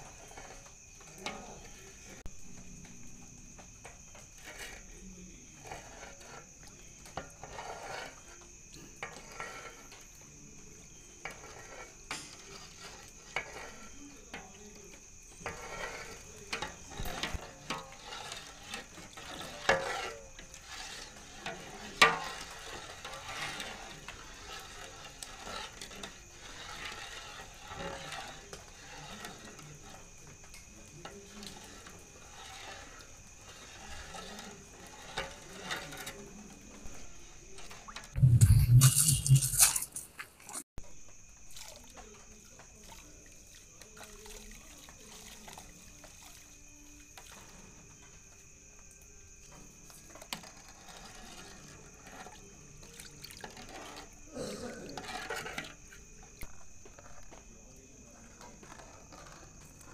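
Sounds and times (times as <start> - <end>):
metal utensils scraping cooking pots: 5.6 - 30.6, 31.4 - 40.6
sharp metal clank: 38.2 - 40.2.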